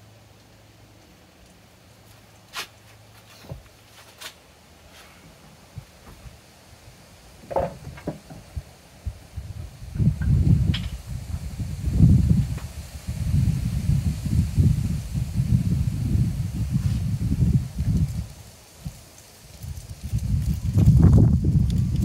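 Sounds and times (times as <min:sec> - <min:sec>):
rustling and scraping: 0:02.0 - 0:06.4, 0:16.7 - 0:17.1.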